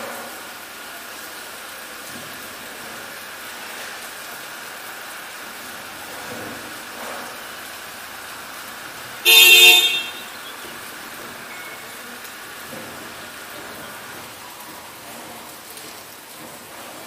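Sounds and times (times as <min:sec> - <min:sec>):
steady rain hiss: 0:00.0 - 0:17.0
vehicle horn toot: 0:09.2 - 0:10.6.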